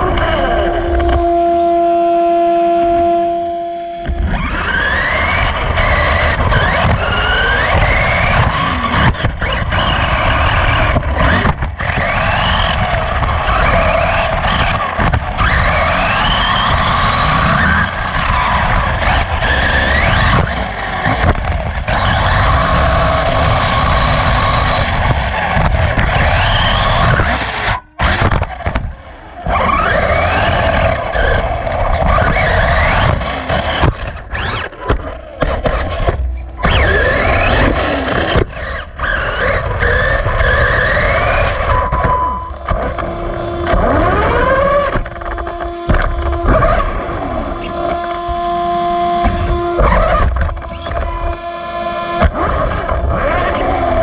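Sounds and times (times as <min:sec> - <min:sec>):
motor and drivetrain whine: 0:00.0 - 0:54.0
wheels rumbling on track: 0:00.0 - 0:54.0.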